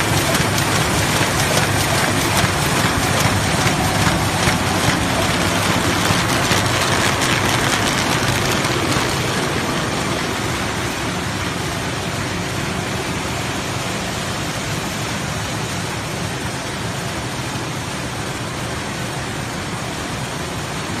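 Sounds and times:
paper bag machine clattering: 0:00.0 - 0:10.7.

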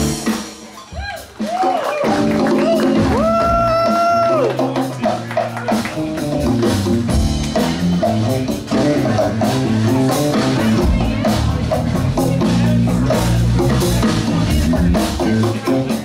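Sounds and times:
drum kit: 0:00.0 - 0:16.0
electric bass line: 0:05.8 - 0:16.0.

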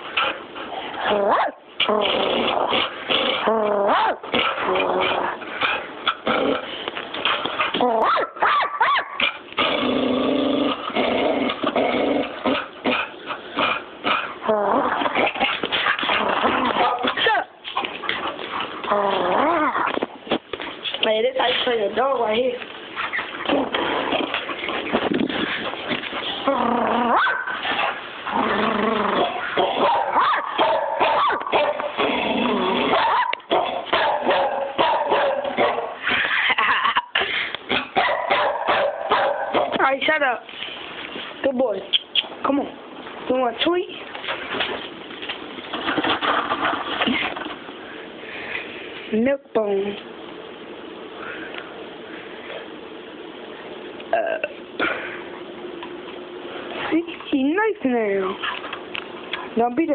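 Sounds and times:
dog growling bark: 0:01.0 - 0:06.8, 0:07.7 - 0:17.5, 0:26.3 - 0:39.8
dog barking: 0:08.0 - 0:09.2, 0:27.2 - 0:27.6, 0:29.6 - 0:31.9, 0:32.9 - 0:36.0, 0:37.8 - 0:39.8
dog yipping: 0:08.0 - 0:09.2, 0:27.2 - 0:27.5, 0:29.8 - 0:31.8.

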